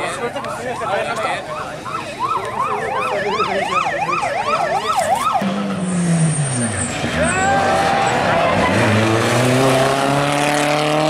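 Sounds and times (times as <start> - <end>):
car engine: 0.0 - 11.0
emergency siren yelping: 0.2 - 5.8.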